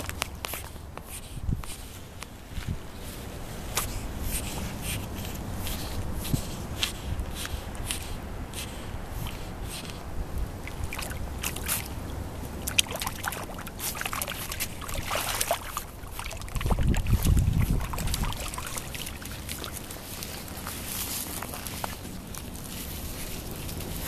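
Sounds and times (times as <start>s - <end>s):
water splashing and sloshing: 0.0s - 24.0s
low microphone rumble: 15.8s - 24.0s.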